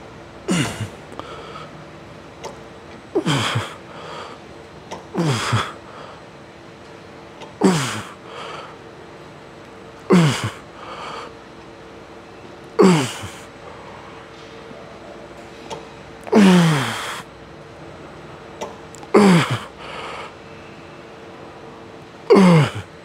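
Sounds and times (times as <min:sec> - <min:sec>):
man grunting: 0:00.5 - 0:01.0, 0:03.2 - 0:03.8, 0:05.2 - 0:05.8, 0:07.6 - 0:08.2, 0:10.1 - 0:10.6, 0:12.8 - 0:13.5, 0:16.3 - 0:17.2, 0:19.2 - 0:19.7, 0:22.3 - 0:22.9.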